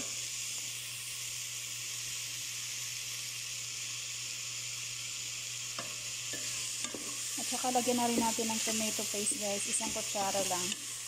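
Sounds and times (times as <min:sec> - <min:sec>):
vegetables sizzling in hot oil: 0:00.0 - 0:11.0.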